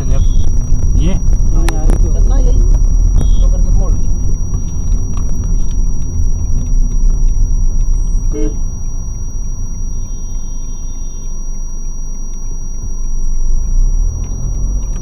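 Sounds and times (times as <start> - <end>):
car engine and road rumble: 0.0 - 15.0
car horn toot: 8.0 - 8.8.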